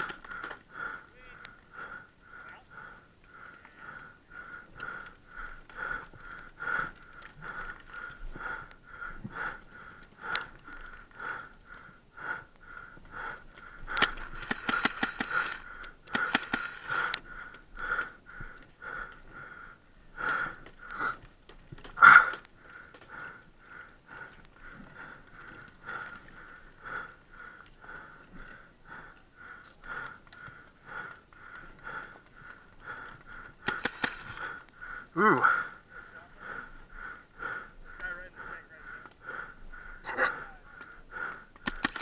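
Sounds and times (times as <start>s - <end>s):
paintball marker shots: 14.0s - 16.9s, 33.6s - 34.4s, 41.6s - 42.0s.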